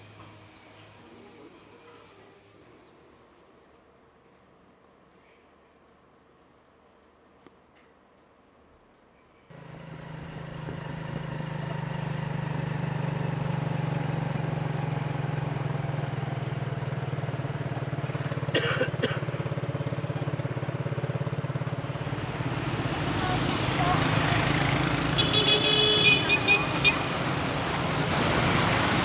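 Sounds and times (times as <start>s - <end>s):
street traffic: 0.0s - 29.0s
motorbike engine running: 9.5s - 27.6s.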